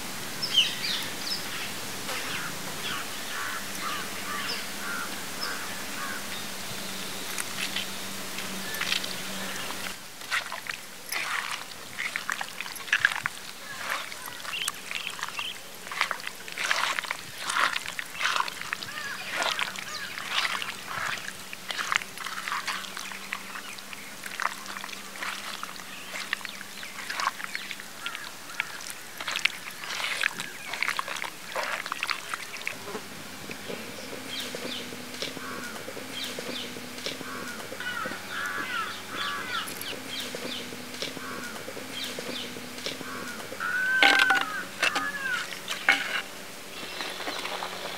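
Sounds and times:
bird calls: 0:00.4 - 0:32.8, 0:33.6 - 0:47.9
hands squelching in marinade: 0:08.6 - 0:32.8, 0:43.6 - 0:47.9.

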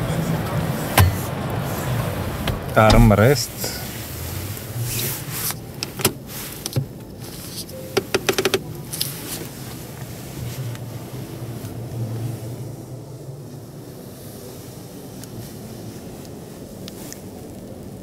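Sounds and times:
hall background noise: 0:00.0 - 0:18.0
knocks: 0:01.0 - 0:01.3
handbrake ratchet clicks: 0:08.0 - 0:08.6.

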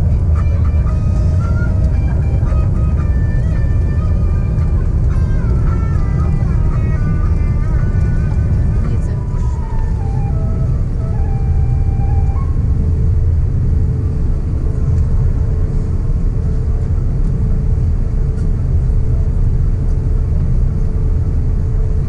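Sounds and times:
aircraft cabin engine rumble: 0:00.0 - 0:22.0.

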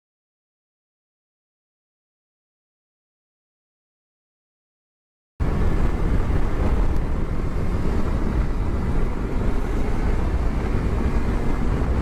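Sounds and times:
road noise: 0:05.4 - 0:12.0
wind buffeting microphone: 0:05.4 - 0:12.0.

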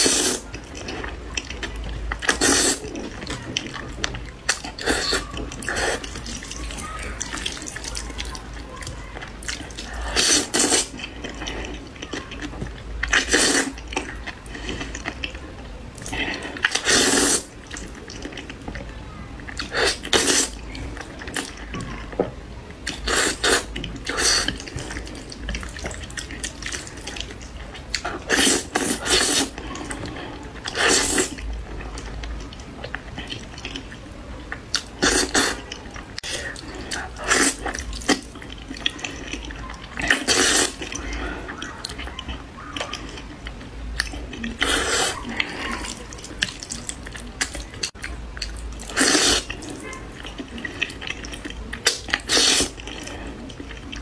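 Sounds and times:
noodles being slurped: 0:00.0 - 0:15.4, 0:16.0 - 0:18.6, 0:19.5 - 0:22.0, 0:22.8 - 0:34.0, 0:34.7 - 0:43.3, 0:44.0 - 0:54.0
chewing mouth sounds: 0:00.0 - 0:22.0, 0:22.8 - 0:54.0.

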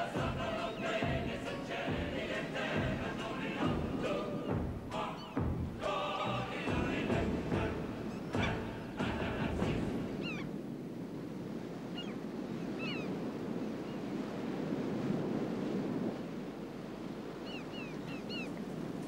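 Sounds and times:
surf washing onto beach: 0:00.0 - 0:17.4
short high bird calls: 0:10.2 - 0:10.5, 0:17.4 - 0:18.5.

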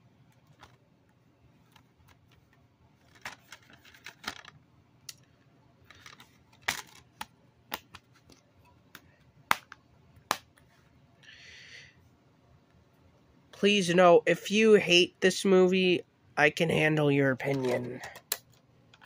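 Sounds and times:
rustling of handling: 0:00.3 - 0:09.3.

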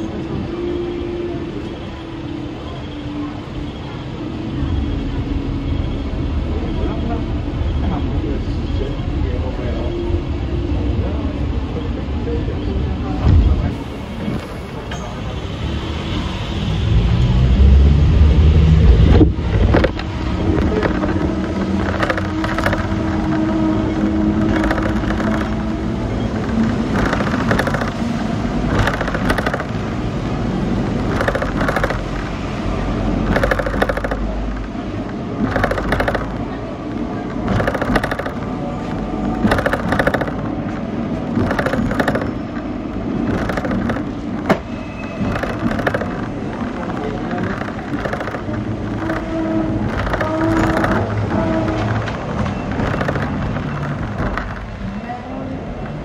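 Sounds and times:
tram hum with held tone: 0:00.0 - 0:56.0
tram rumbling on rails: 0:00.0 - 0:56.0
rattling: 0:19.5 - 0:30.0, 0:30.8 - 0:32.4, 0:33.1 - 0:54.9.

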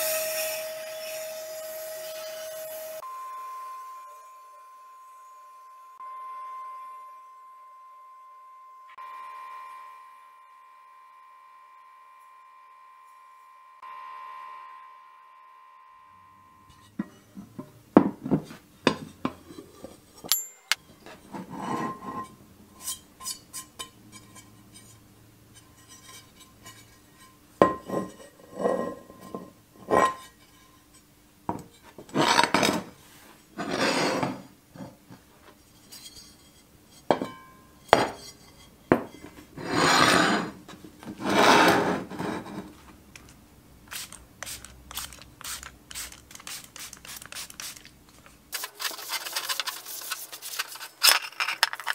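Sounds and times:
iron scraping on table: 0:18.3 - 0:31.0, 0:31.7 - 0:42.8
cast iron clinking and knocking: 0:27.6 - 0:28.2, 0:37.0 - 0:39.4.

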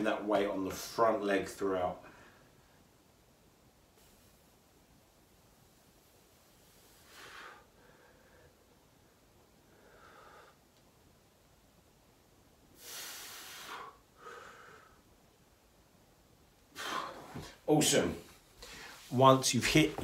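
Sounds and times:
man breathing heavily: 0:06.6 - 0:08.8, 0:09.6 - 0:10.7, 0:12.8 - 0:15.1, 0:16.7 - 0:17.6.

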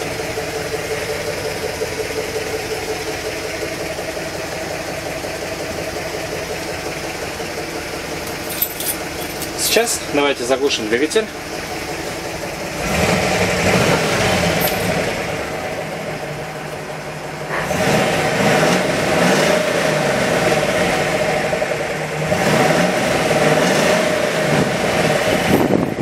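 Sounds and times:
bus engine revving: 0:12.6 - 0:16.7, 0:17.4 - 0:26.0.

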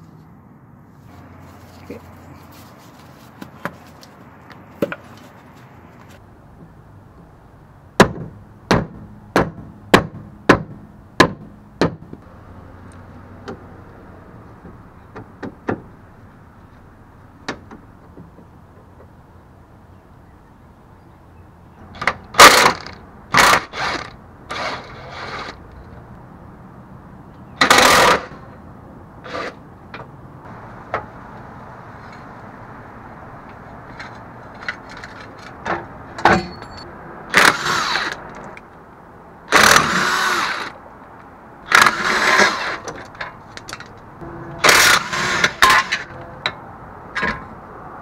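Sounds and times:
sharp metallic knocks: 0:08.0 - 0:12.2, 0:44.2 - 0:47.6.

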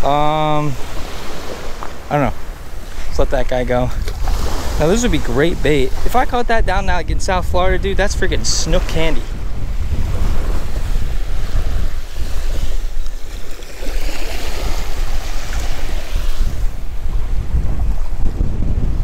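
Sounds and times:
wind buffeting microphone: 0:00.0 - 0:19.0
waves washing on pebble shore: 0:10.6 - 0:16.6.

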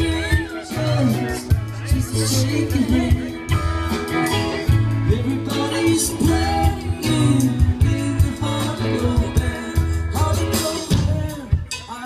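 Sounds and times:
low bass notes: 0:00.0 - 0:11.8
electric guitar: 0:00.0 - 0:12.0
person singing: 0:00.0 - 0:12.0.

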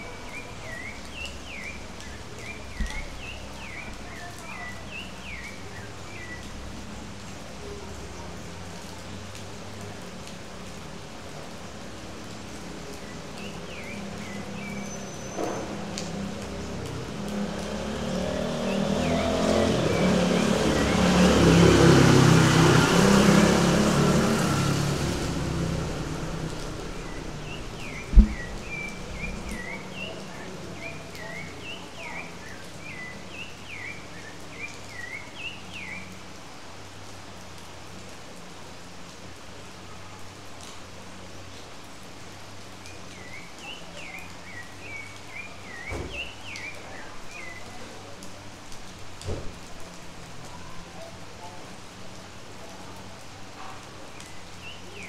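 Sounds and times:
steady rain falling: 0:00.0 - 0:55.0
vehicle passing: 0:16.8 - 0:30.5
bird chirping: 0:26.1 - 0:32.0
sharp knock: 0:28.0 - 0:28.8.

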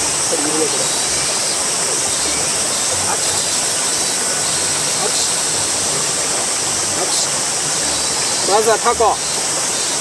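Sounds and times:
stream flowing over rocks: 0:00.0 - 0:10.0.

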